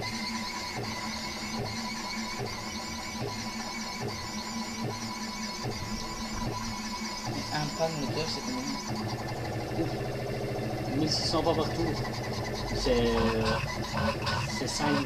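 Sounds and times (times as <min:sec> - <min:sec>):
stepper motors whining: 0:00.0 - 0:15.0
faint regular pulse: 0:02.5 - 0:15.0.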